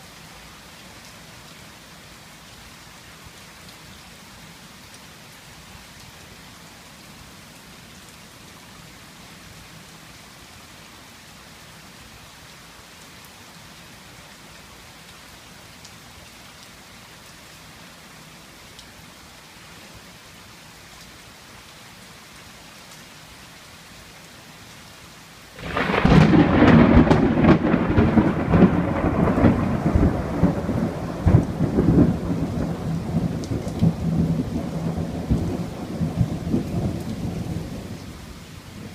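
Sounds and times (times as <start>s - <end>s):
heavy rain: 0.0s - 38.9s
thunder crack and rumble: 25.6s - 37.5s.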